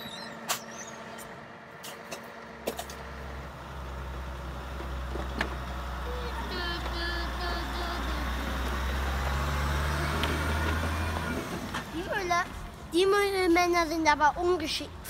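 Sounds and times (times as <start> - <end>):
truck engine running: 0.0 - 14.6.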